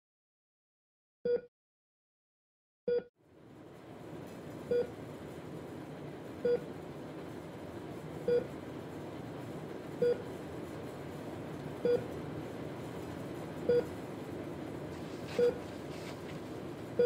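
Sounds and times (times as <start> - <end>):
heart monitor beeping: 4.7 - 5.0, 6.4 - 6.7, 8.2 - 8.6, 10.0 - 10.4, 11.8 - 12.2, 13.6 - 14.0, 15.1 - 16.3.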